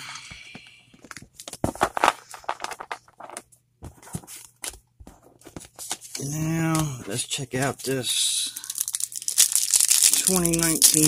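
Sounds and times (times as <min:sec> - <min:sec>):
cards tapping and rustling: 0:01.0 - 0:06.9.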